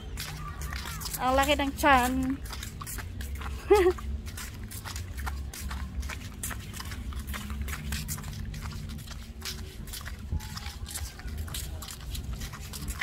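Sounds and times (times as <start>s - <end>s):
footsteps: 0.0s - 13.0s
wind rumble on microphone: 6.7s - 13.0s.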